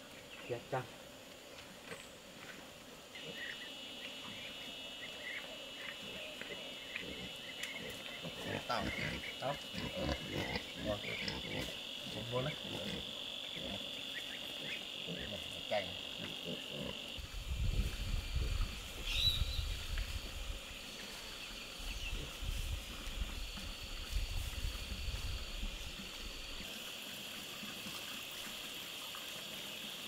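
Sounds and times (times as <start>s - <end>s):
insects shrilling drone: 0.0s - 30.0s
low rumbling noise: 17.2s - 20.6s.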